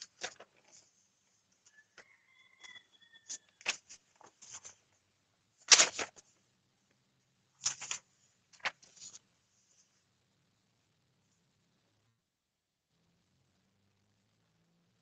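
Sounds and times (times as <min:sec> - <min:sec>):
paper rustling and shuffling: 0:00.0 - 0:05.0, 0:05.6 - 0:06.4, 0:07.6 - 0:10.0.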